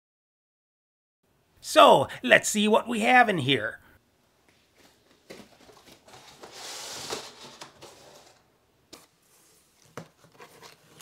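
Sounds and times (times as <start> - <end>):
packing rustling in cardboard box: 5.2 - 8.4.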